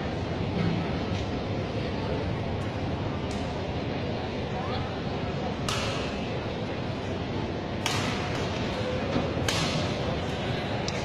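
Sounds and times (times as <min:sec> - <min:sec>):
hall background noise: 0:00.0 - 0:11.0
racket hitting shuttlecock: 0:05.7 - 0:06.2, 0:07.8 - 0:08.7, 0:09.4 - 0:10.0.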